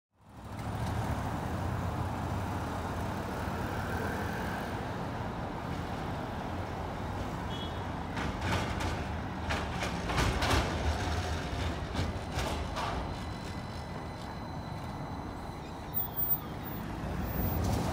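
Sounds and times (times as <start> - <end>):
street traffic rumble: 0.2 - 17.9
tram clacking on rails: 5.7 - 17.9.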